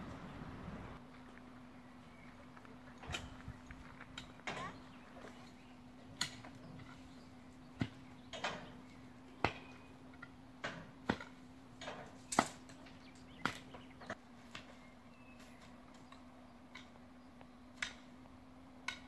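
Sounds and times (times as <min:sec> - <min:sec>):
faint hum: 0:00.0 - 0:10.6.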